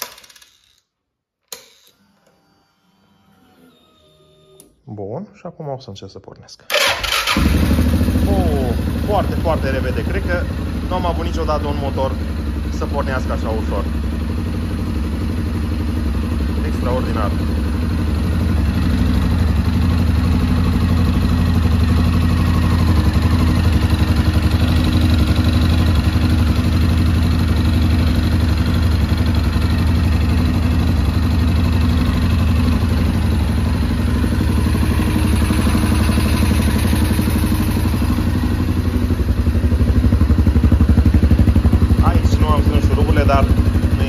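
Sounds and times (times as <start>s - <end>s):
engine idling: 6.7s - 44.0s.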